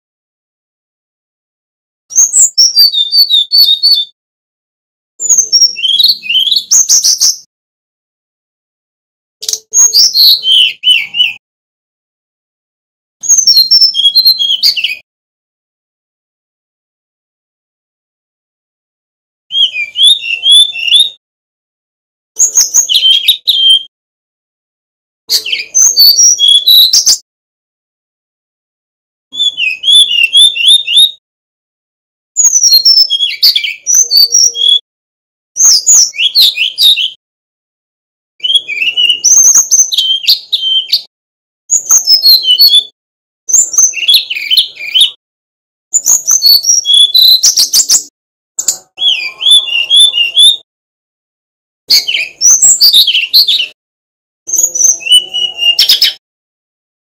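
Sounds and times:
bird singing fluty whistles: 2.1s - 4.1s, 5.2s - 7.5s, 9.5s - 11.4s, 13.2s - 15.0s, 19.5s - 21.2s, 22.4s - 23.9s, 25.3s - 27.2s, 29.4s - 31.2s, 32.4s - 34.8s, 35.6s - 37.1s, 38.4s - 41.1s, 41.7s - 42.9s, 43.5s - 45.2s, 46.0s - 48.1s, 48.9s - 50.6s, 51.9s - 53.8s, 54.5s - 56.2s.

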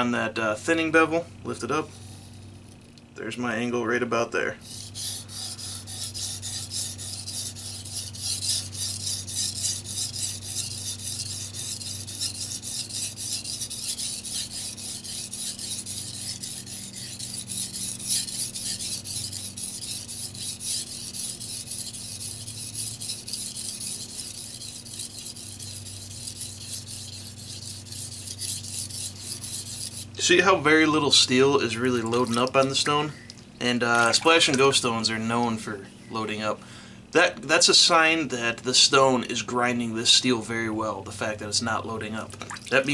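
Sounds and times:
knife grinding on whetstone: 4.6s - 30.4s, 31.0s - 32.8s.

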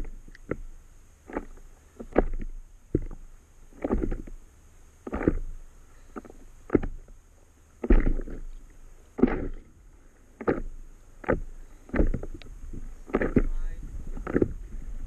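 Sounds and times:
water slapping against a board: 1.2s - 4.4s, 5.0s - 5.5s, 6.2s - 7.0s, 7.8s - 8.6s, 9.2s - 9.7s, 10.4s - 14.6s.

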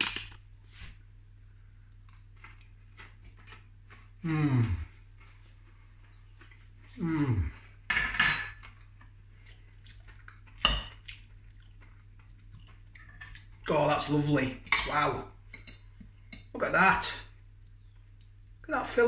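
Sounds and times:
man humming: 4.2s - 4.9s, 7.0s - 7.6s.

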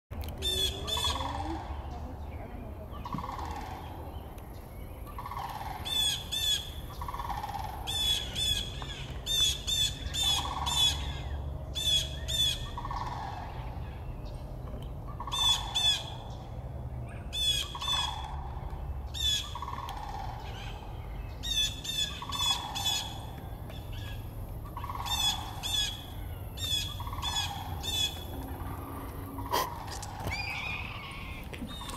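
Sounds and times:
blue jay harsh calls: 5.1s - 13.4s, 15.2s - 16.3s, 17.3s - 18.4s, 19.1s - 20.8s, 21.4s - 31.9s.

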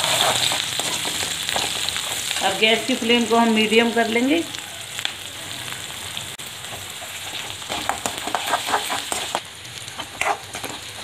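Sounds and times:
onions sizzling in hot oil: 0.0s - 11.0s
ladle scraping and knocking pan: 6.7s - 9.4s.

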